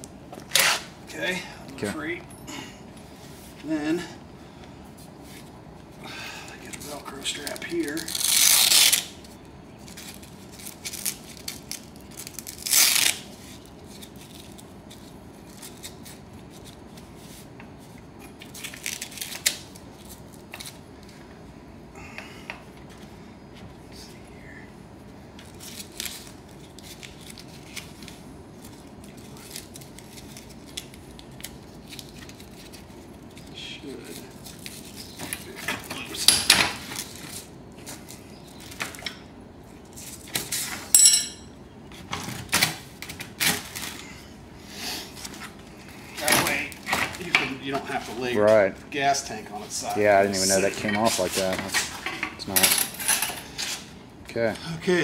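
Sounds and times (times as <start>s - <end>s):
velcro strap rasping: 7.4s - 17.4s.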